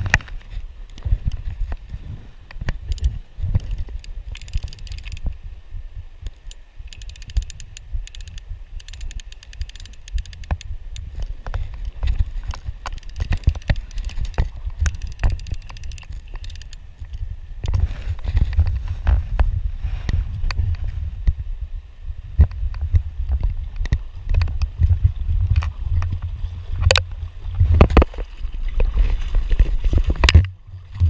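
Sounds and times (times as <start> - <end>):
fishing reel ratchet clicking: 2.9 - 5.3, 6.3 - 11.1, 12.8 - 16.8.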